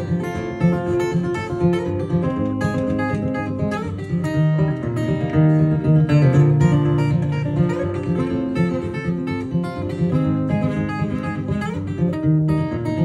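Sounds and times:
acoustic guitar solo: 0:00.0 - 0:13.0.

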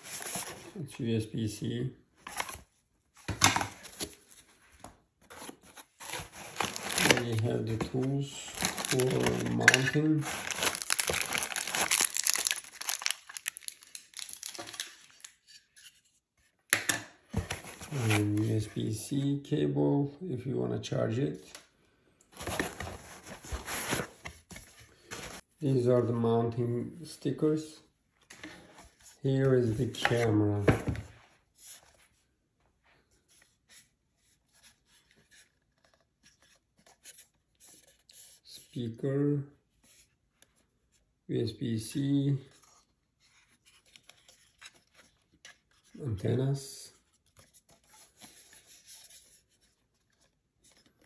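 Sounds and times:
packaging crinkling and rustling: 0:05.3 - 0:15.4, 0:22.4 - 0:25.4.

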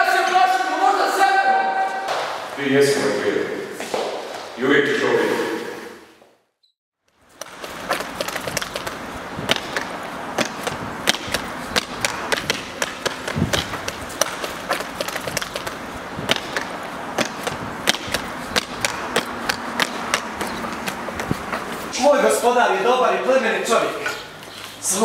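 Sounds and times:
steady noisy background: 0:07.1 - 0:24.9
sharp clacks and knocks: 0:07.4 - 0:21.8.

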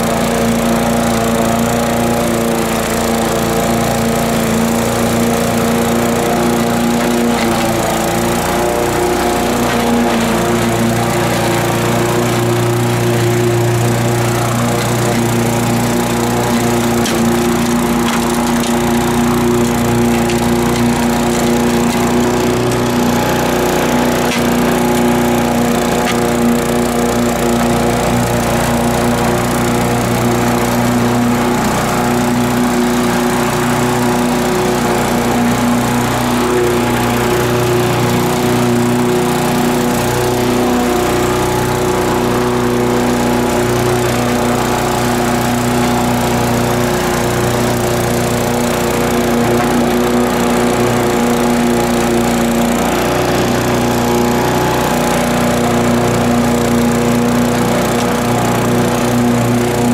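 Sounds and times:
lawn mower engine running: 0:00.0 - 0:59.9.

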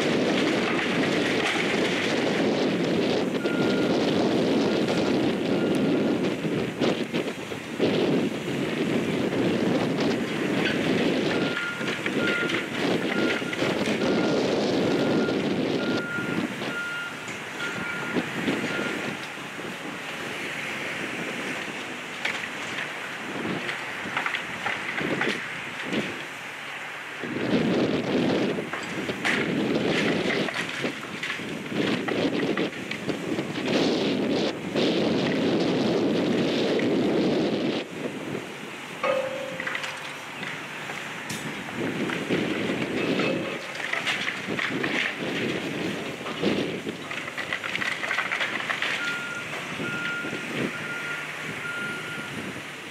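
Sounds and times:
wood and brick cracking and crashing: 0:00.0 - 0:05.0, 0:22.2 - 0:26.3, 0:28.3 - 0:33.9, 0:39.5 - 0:49.9
excavator engine running: 0:00.0 - 0:08.1, 0:08.7 - 0:19.8, 0:38.9 - 0:52.4
timber and masonry crunching: 0:00.0 - 0:52.1
backup alarm beeping: 0:03.4 - 0:03.9, 0:49.0 - 0:52.4.

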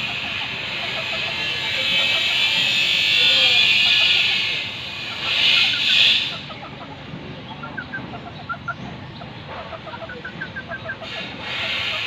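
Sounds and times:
loud high-pitched buzz: 0:00.0 - 0:06.5
chickens clucking: 0:00.0 - 0:12.0.

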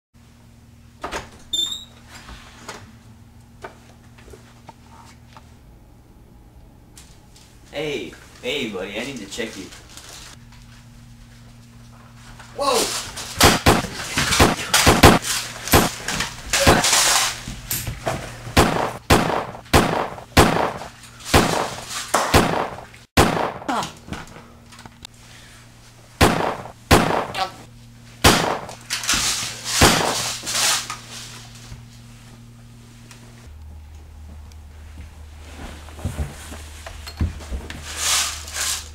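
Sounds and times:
sharp knocks thuds and crashes: 0:13.4 - 0:16.0, 0:18.6 - 0:23.7, 0:26.2 - 0:27.4.

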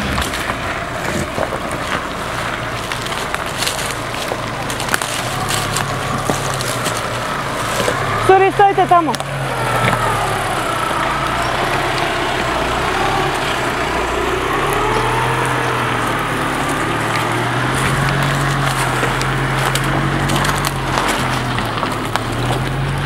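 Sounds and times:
pickup engine running at low revs: 0:00.0 - 0:23.0.

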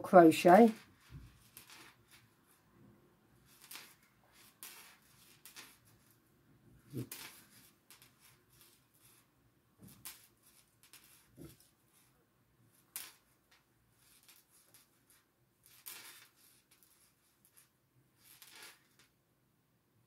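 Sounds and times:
yarn rustling: 0:03.4 - 0:06.2, 0:06.8 - 0:19.0.

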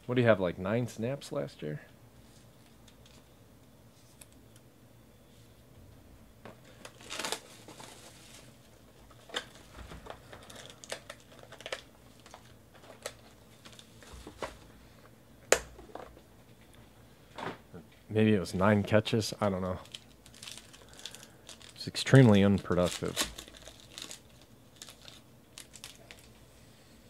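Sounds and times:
shrink-wrap crinkling: 0:06.6 - 0:14.7, 0:19.4 - 0:26.5.

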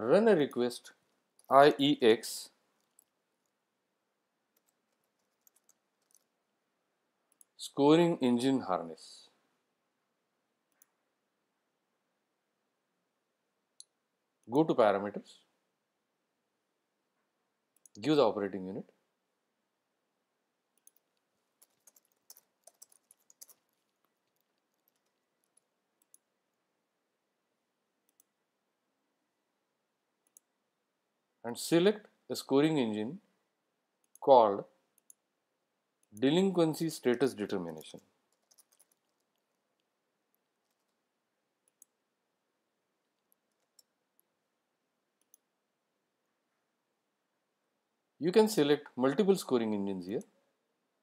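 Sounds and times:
computer keyboard keystrokes: 0:04.6 - 0:06.3, 0:20.8 - 0:26.2, 0:38.3 - 0:39.4
mouse clicks: 0:45.2 - 0:45.5.

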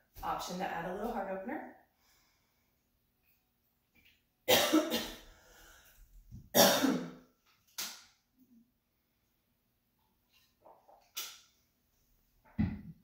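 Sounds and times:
woman coughing: 0:04.5 - 0:05.2, 0:06.6 - 0:07.1.

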